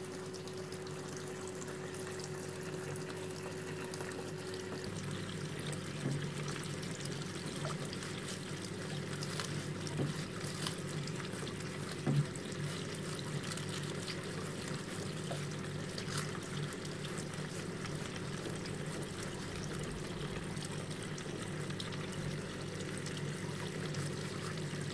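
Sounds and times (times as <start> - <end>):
fluid pouring and trickling: 0.0 - 24.9
pump humming: 0.0 - 24.9.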